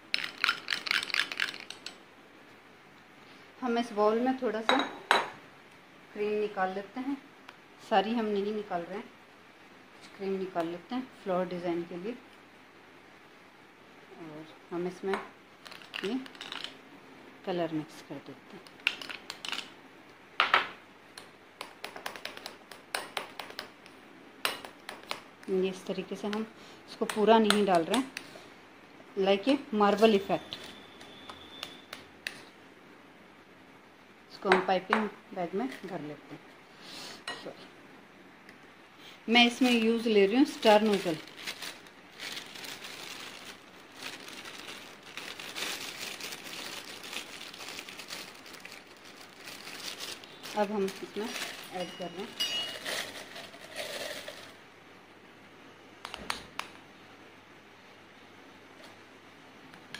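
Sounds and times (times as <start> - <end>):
plastic bag crinkling: 0.0 - 2.0, 15.6 - 16.8, 40.4 - 54.6
metal spoon clinking against bowls: 51.6 - 53.2.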